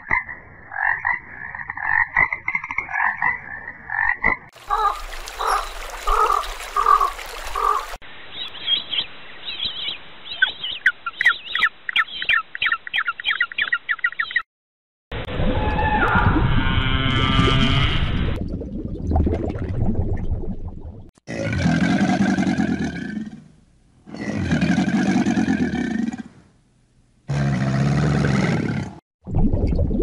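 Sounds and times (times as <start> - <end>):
frogs croaking: 0.0 - 14.3.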